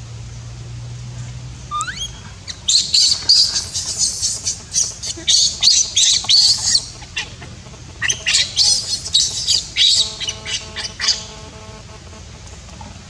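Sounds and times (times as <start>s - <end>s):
baby monkey squealing: 1.7s - 11.4s.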